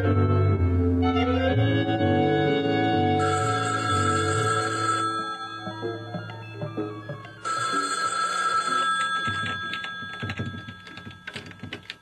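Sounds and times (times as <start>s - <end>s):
telephone bell ringing: 3.2s - 12.0s.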